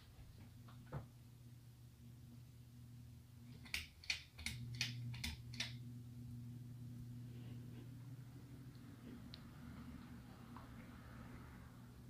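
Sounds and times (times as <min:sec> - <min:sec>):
ceiling fan motor humming: 0:00.0 - 0:12.0
sharp clicks: 0:03.6 - 0:05.8.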